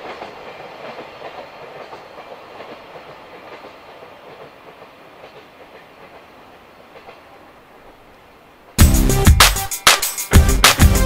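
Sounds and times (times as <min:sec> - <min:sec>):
train wheels clattering on rails: 0:00.0 - 0:08.8.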